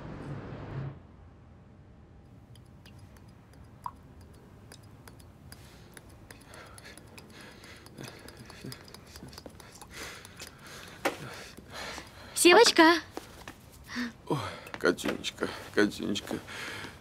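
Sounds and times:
glass ticks and clinks: 2.6s - 10.9s.

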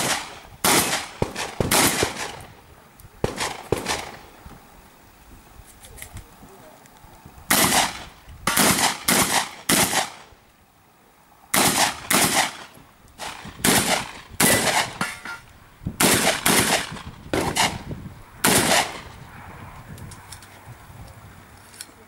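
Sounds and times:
shotgun shots: 0.0s - 2.6s, 3.2s - 4.2s, 7.5s - 10.3s, 11.5s - 15.3s, 16.0s - 19.2s.

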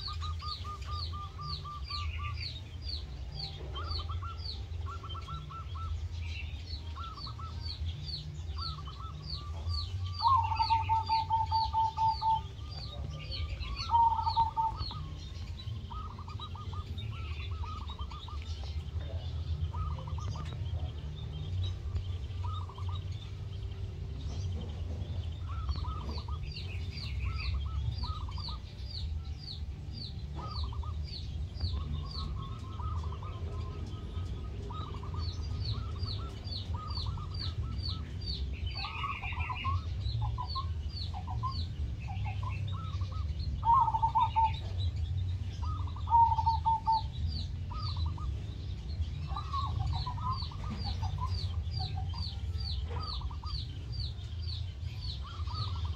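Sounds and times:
doves cooing: 0.0s - 55.9s
steady low rumble: 0.0s - 55.9s.

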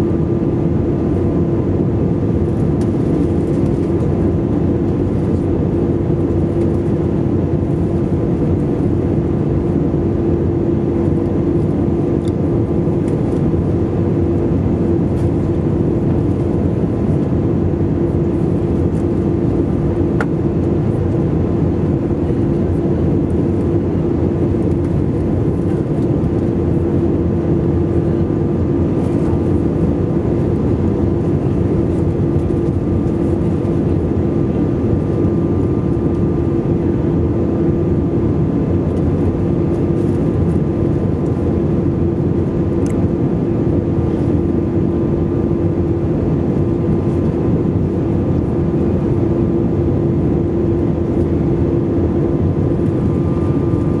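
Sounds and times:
constant low hum: 0.0s - 54.0s
jet engine drone: 0.0s - 54.0s
rushing airflow: 50.5s - 54.0s.

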